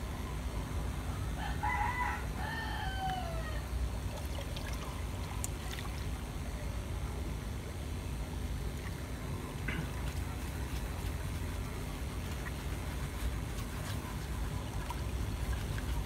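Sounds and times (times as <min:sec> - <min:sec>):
rooster crowing: 0:01.4 - 0:03.7.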